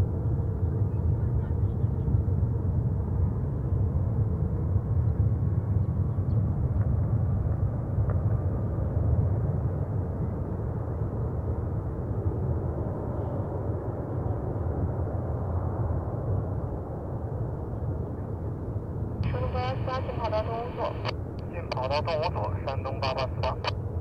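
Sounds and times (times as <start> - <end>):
jet engines rumbling: 9.6 - 24.0.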